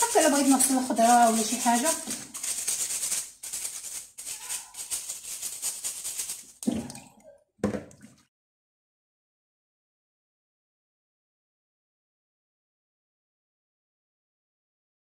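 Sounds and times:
brush scrubbing lemon peel: 0.0 - 6.6
splashes in bowl of water: 6.6 - 8.3.

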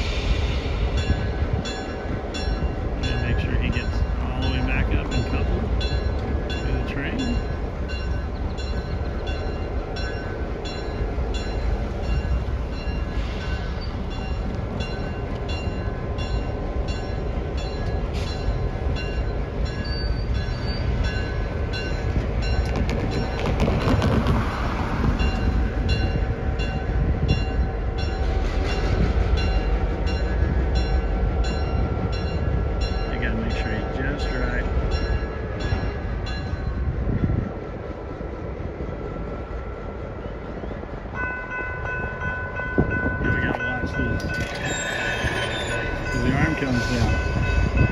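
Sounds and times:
diesel locomotive idling: 24.4 - 47.9.

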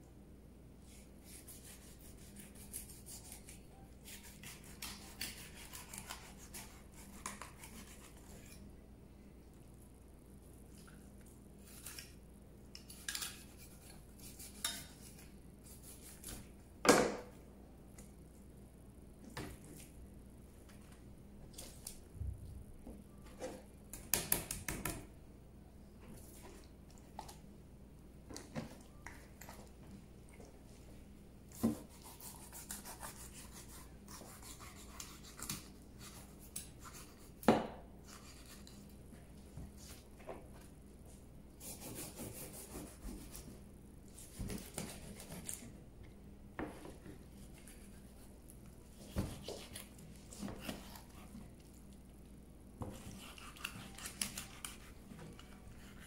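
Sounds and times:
knife and fish on cutting board: 0.9 - 8.6, 12.8 - 16.5, 31.6 - 38.8, 44.2 - 45.7, 48.9 - 51.3, 52.8 - 56.0.

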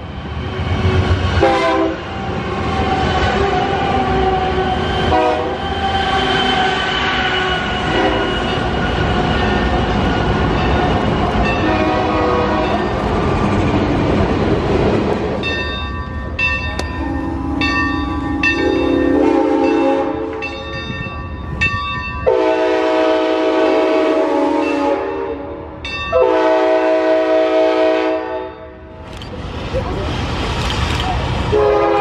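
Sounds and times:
freight train rumble: 0.0 - 32.0
steam locomotive whistle: 1.4 - 2.1, 2.9 - 9.4, 11.6 - 12.9, 17.0 - 20.6, 22.3 - 28.6, 31.5 - 32.0.

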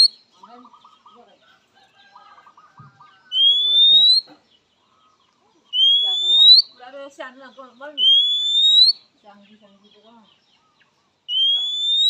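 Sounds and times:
bird rising whistle: 3.3 - 4.3, 5.7 - 6.7, 8.0 - 9.0, 11.3 - 12.0.

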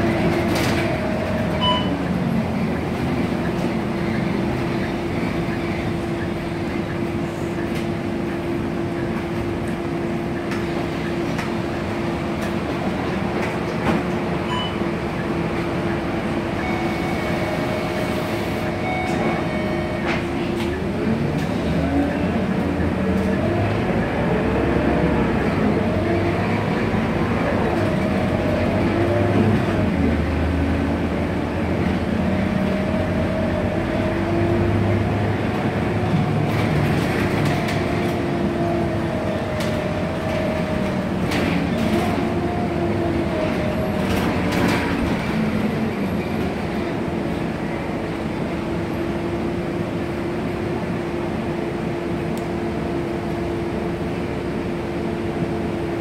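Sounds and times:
bus engine whining: 0.0 - 56.0.

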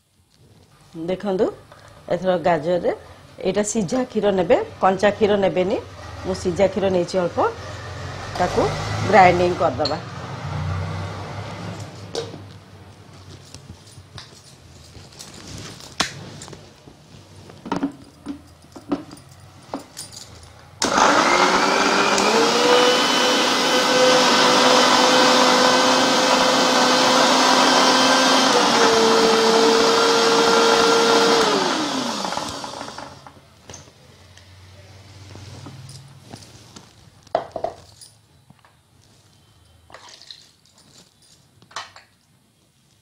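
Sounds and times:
mixer grinder motor whine: 20.8 - 33.4.

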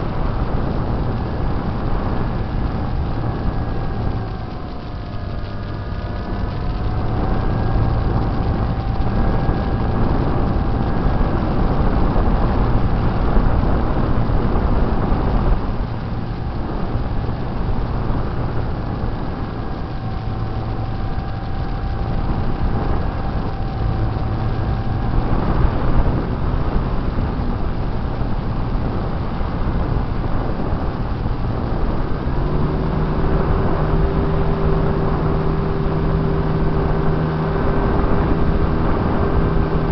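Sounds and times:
model airplane motor whine: 0.0 - 29.0
wind rushing across microphone: 0.0 - 39.9.

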